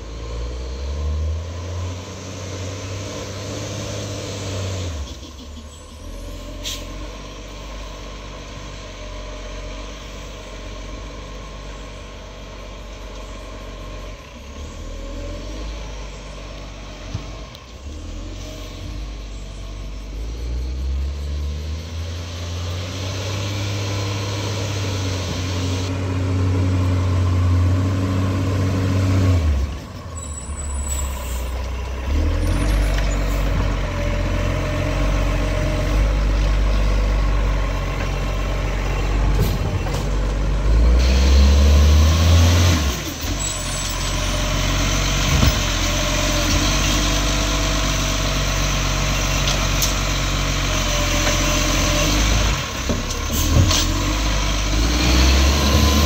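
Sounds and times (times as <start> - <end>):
garbage truck diesel engine revving: 0.0 - 56.0
air brakes hiss: 6.6 - 7.0.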